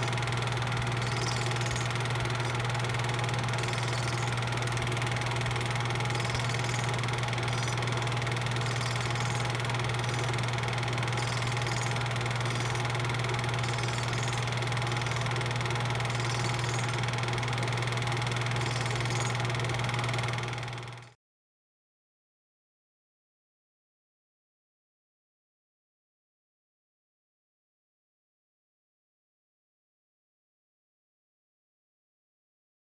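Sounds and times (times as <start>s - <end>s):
film projector running: 0.0s - 21.2s.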